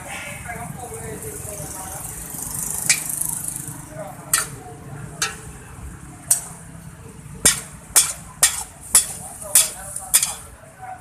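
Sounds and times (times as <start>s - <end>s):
metal spatula clanking on wok: 4.3s - 4.6s, 5.2s - 5.5s, 6.2s - 6.6s, 7.4s - 10.5s.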